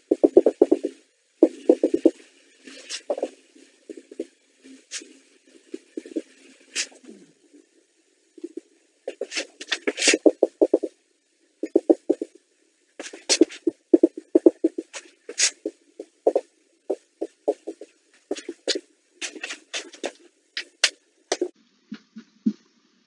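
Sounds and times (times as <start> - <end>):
marker squeaking on whiteboard: 0.1 - 2.2, 2.8 - 4.3, 8.5 - 10.9, 11.6 - 12.4, 13.0 - 20.2.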